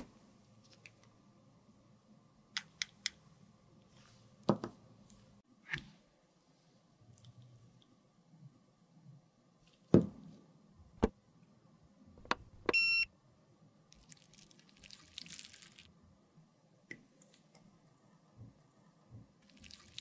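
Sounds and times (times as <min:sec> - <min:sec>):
button clicks: 0:12.2 - 0:13.1
short electronic beep: 0:12.7 - 0:13.1.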